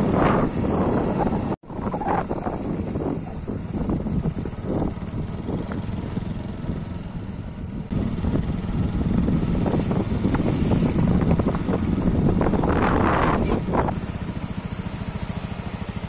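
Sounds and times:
wind rushing over microphone: 0:00.0 - 0:14.1
motorbike engine running: 0:00.0 - 0:16.0.

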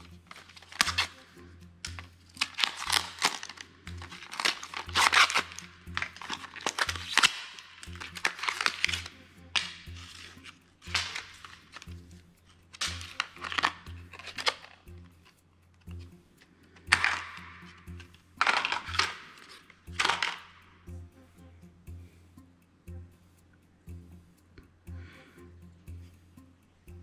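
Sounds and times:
quiet background music: 0:00.0 - 0:27.0
plastic packaging crinkling: 0:00.3 - 0:01.2, 0:02.4 - 0:09.2, 0:12.8 - 0:14.8.

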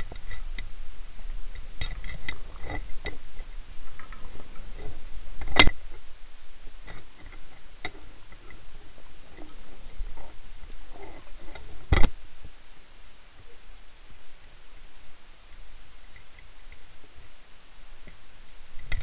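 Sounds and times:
small underwater clicks and knocks: 0:00.0 - 0:06.1, 0:06.8 - 0:12.6, 0:15.5 - 0:17.3, 0:18.0 - 0:19.0.

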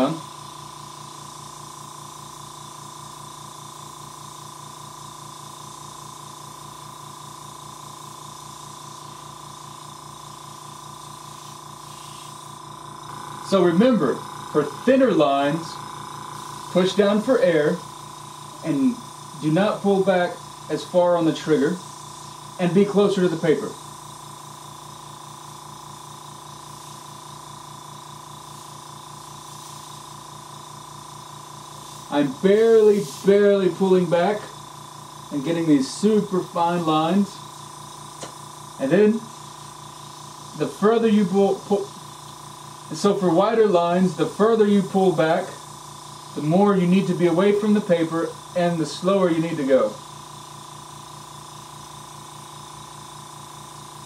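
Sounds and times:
airbrush air hissing: 0:00.0 - 0:54.0
steady low hum: 0:00.0 - 0:54.0.

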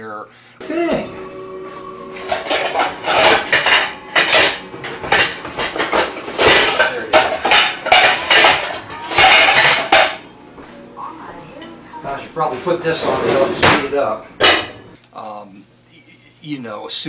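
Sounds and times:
metal utensil scraping cookware: 0:02.1 - 0:10.3.

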